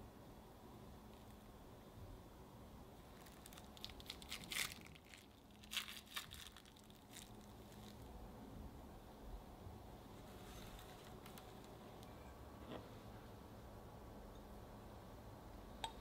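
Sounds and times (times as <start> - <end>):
plastic wrap crinkling: 3.1 - 8.1, 10.4 - 11.8.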